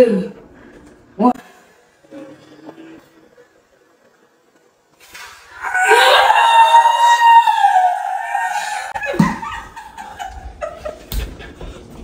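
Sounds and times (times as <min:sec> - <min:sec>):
woman screaming: 0:05.6 - 0:09.2.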